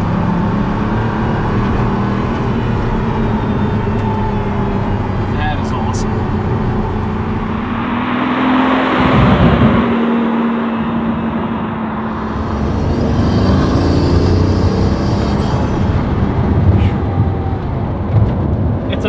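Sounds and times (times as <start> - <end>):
sports car driving past: 6.1 - 17.5.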